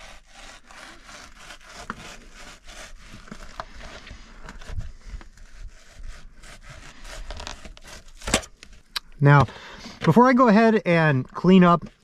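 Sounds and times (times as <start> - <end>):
knife scraping fish fillet: 0.0 - 4.0, 4.6 - 8.4.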